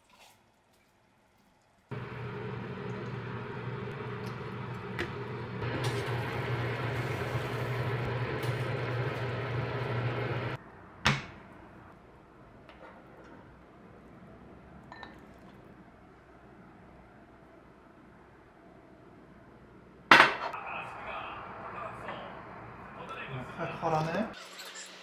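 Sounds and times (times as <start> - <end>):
kitchen appliance hum: 1.9 - 10.6.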